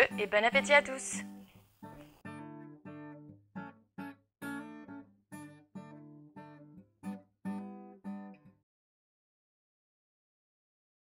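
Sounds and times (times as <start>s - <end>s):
strummed acoustic guitar: 0.1s - 8.6s.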